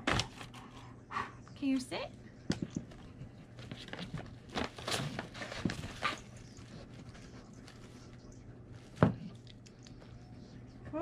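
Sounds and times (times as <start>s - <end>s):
dog rustling through a box: 3.4s - 9.0s.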